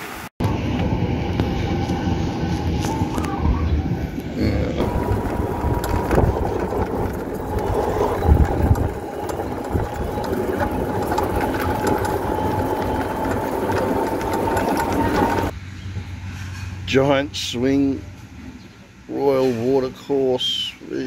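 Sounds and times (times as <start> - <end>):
golf cart driving: 0.4 - 15.5.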